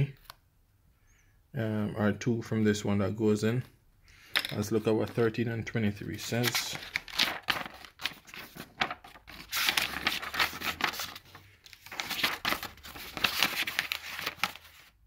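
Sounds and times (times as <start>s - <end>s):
paper pages rustling: 6.1s - 15.0s.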